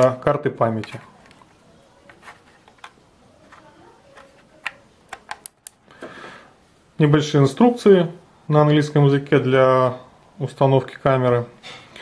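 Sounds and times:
soft rustle: 0.9 - 4.6
fingers clicking plastic case: 2.1 - 5.7.

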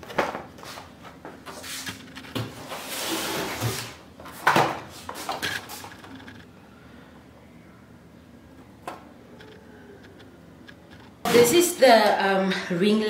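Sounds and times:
cardboard rustling and scraping: 0.2 - 6.4.

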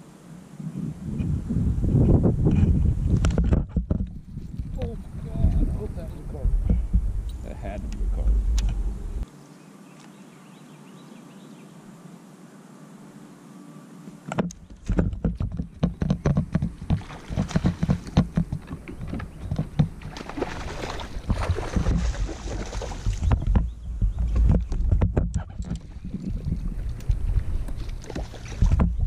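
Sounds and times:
quiet steady hiss: 0.0 - 3.4, 4.0 - 15.0
irregular knocks and bumps: 2.4 - 9.2, 14.3 - 29.0
low rumble: 4.1 - 9.3.

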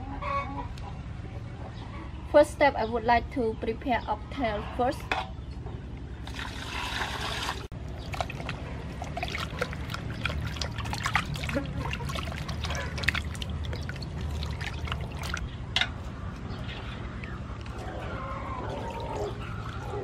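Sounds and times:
water splashing and sloshing: 6.2 - 20.0
water pouring into a metal basin: 6.3 - 15.4.

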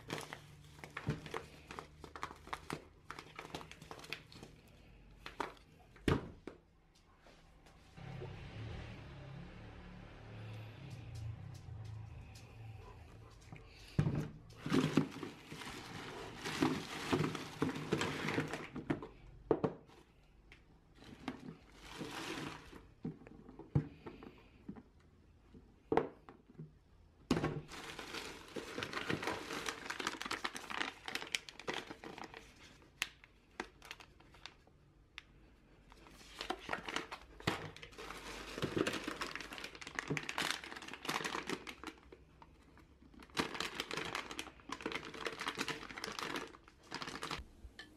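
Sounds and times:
plastic bag crinkling: 0.0 - 5.6, 13.8 - 18.9, 21.0 - 22.9, 27.7 - 34.6, 36.0 - 47.4.

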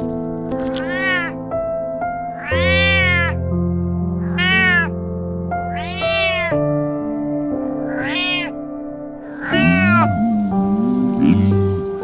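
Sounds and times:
background music of held notes: 0.0 - 12.0
cat meowing: 0.8 - 1.4, 2.3 - 3.4, 4.2 - 5.0, 5.7 - 6.6, 7.9 - 8.6, 9.4 - 10.4.

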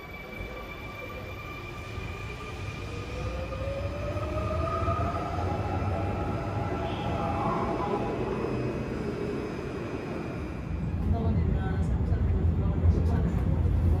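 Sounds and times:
electric train motor whine: 1.2 - 11.0
wheels rumbling on rail: 1.8 - 14.0.

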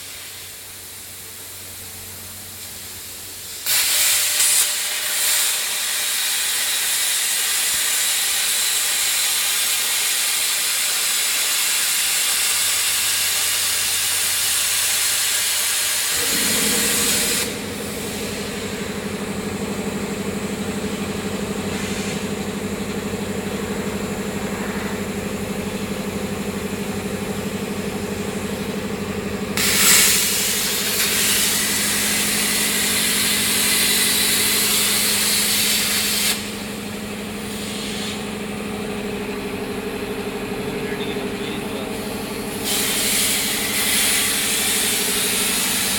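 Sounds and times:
plasma torch hissing: 2.6 - 19.6, 21.7 - 22.2, 29.6 - 36.6, 37.4 - 38.2, 42.0 - 45.9
machine hum: 16.0 - 45.9.

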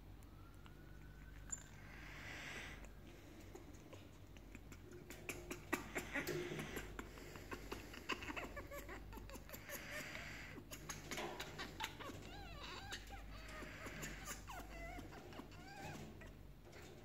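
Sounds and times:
parrot chirps and squawks: 4.4 - 16.3.

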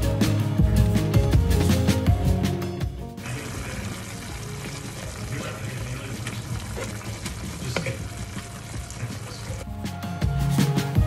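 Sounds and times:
chili sizzling and bubbling: 3.2 - 10.5.

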